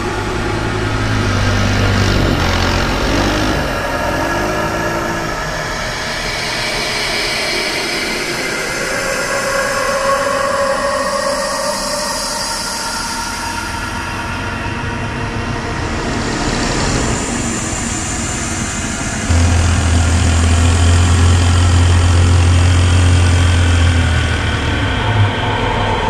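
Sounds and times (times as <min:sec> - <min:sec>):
snowmobile engine running: 0:00.0 - 0:06.0, 0:18.1 - 0:25.4.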